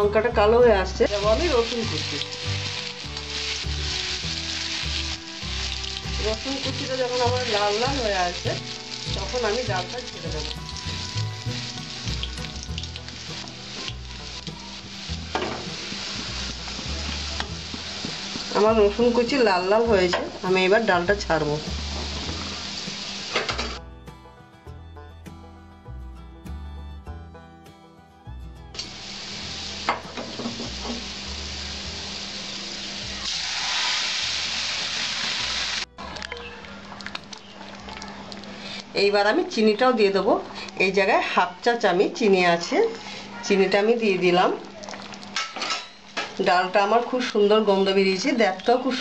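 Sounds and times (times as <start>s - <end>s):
garlic sizzling in hot oil: 0.7s - 23.8s, 28.8s - 35.9s.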